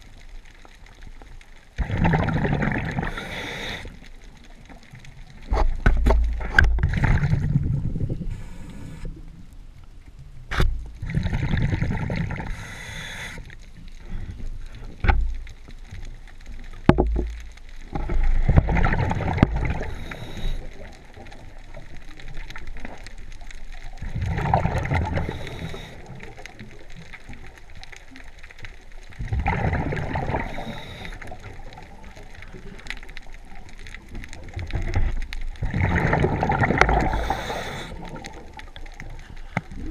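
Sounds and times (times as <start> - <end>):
diver exhaling bubbles underwater: 1.8 - 4.0, 6.8 - 9.0, 11.0 - 12.6, 17.9 - 21.0, 24.0 - 26.4, 29.2 - 32.0, 35.6 - 38.6.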